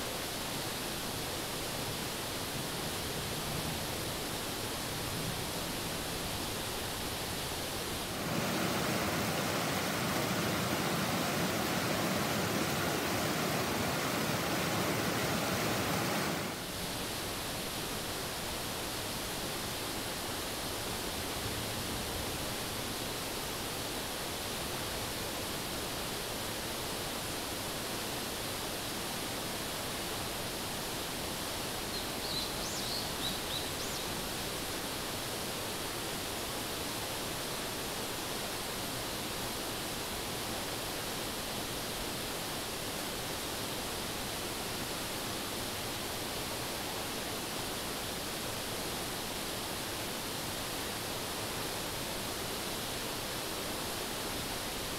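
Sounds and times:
river rushing over rocks: 0:00.1 - 0:21.4.

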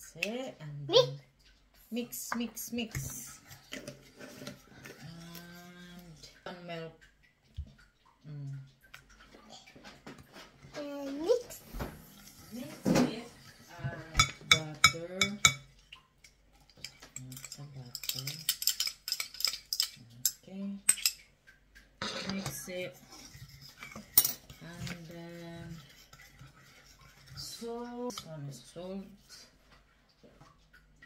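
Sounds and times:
spoon clinking against glass bowl: 0:14.2 - 0:15.7.

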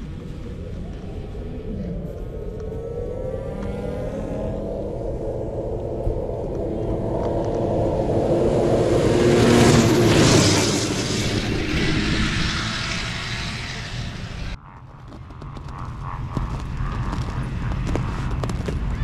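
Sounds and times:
snowmobile engine: 0:00.0 - 0:14.6
low rumble: 0:00.0 - 0:19.0.

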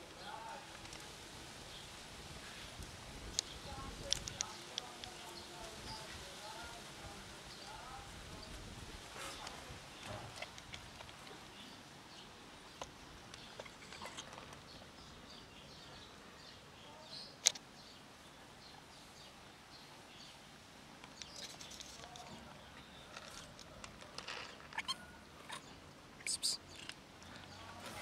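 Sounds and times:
faint bird chirps: 0:24.6 - 0:27.7.

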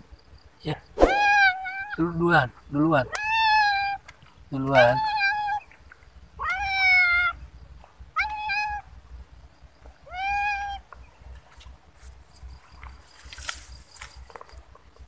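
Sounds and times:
cat meowing: 0:01.0 - 0:02.0, 0:03.1 - 0:04.0, 0:04.7 - 0:05.6, 0:06.4 - 0:07.4, 0:08.2 - 0:08.8, 0:10.0 - 0:10.8.

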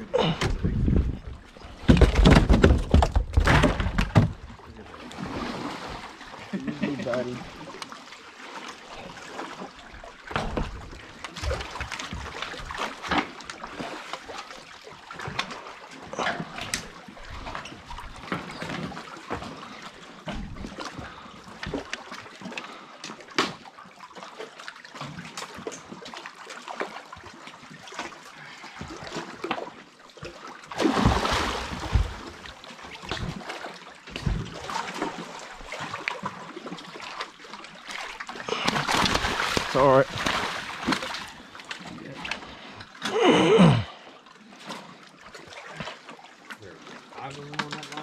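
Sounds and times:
fish thrashing splash: 0:30.7 - 0:37.2, 0:37.9 - 0:41.5.

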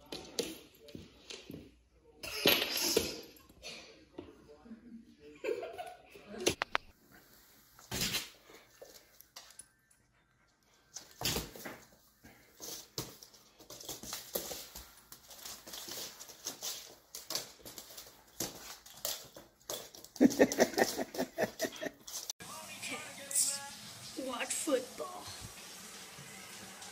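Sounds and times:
claws clicking on wooden floor: 0:12.6 - 0:21.2.

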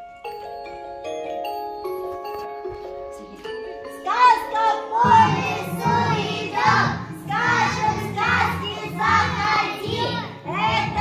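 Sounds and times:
musical backing track: 0:00.0 - 0:11.0
children singing: 0:05.0 - 0:11.0.

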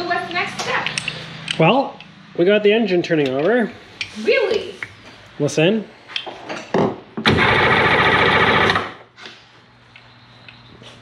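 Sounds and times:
engine cranking without firing: 0:07.3 - 0:09.0.

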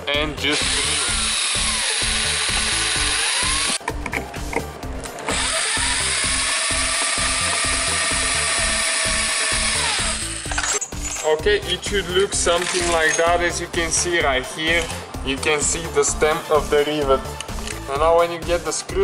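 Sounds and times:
background music with beat: 0:00.0 - 0:19.0
power drill drilling metal: 0:00.5 - 0:03.8, 0:05.3 - 0:10.8.

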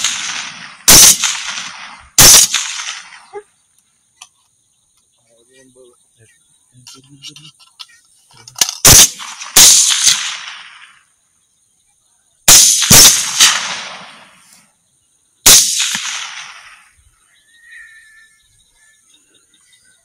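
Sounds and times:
rifle shots echoing: 0:00.0 - 0:03.4, 0:08.6 - 0:11.1, 0:12.5 - 0:14.4, 0:15.4 - 0:17.0.

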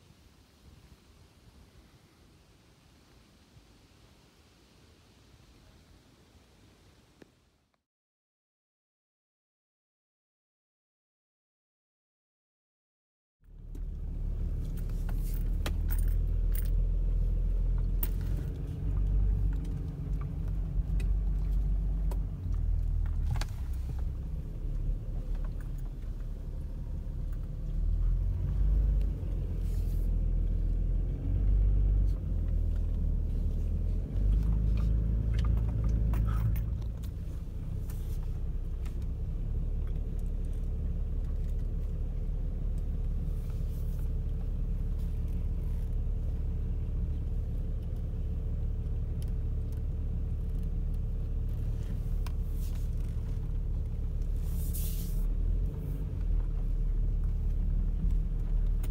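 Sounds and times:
car rumbling on dirt track: 0:13.5 - 0:58.9.

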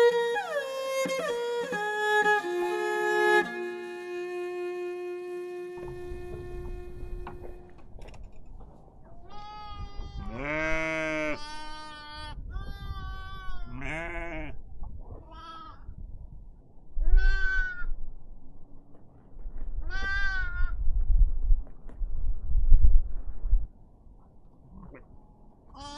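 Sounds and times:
livestock bleating: 0:09.2 - 0:14.6, 0:15.3 - 0:15.8, 0:17.0 - 0:18.0, 0:19.9 - 0:20.8.

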